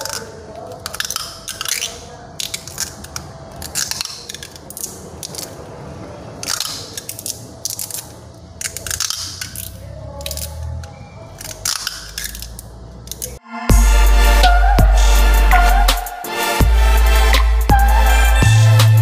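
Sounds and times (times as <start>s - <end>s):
plastic tape crackling off roll: 0.0s - 13.4s.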